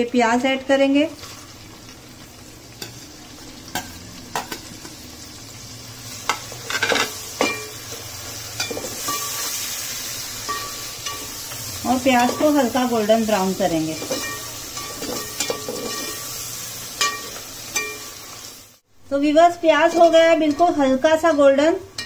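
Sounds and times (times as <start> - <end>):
onions frying in hot oil: 0.0 - 22.0
spoon knocking and scraping pan: 3.7 - 5.0, 6.2 - 7.8, 8.6 - 9.6, 13.9 - 16.4, 17.0 - 18.2.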